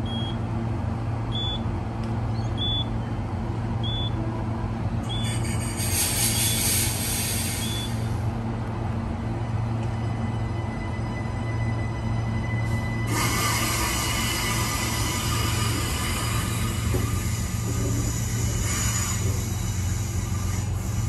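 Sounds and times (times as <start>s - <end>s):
train cabin low hum: 0.0s - 21.0s
air hiss: 5.2s - 8.3s, 13.1s - 21.0s.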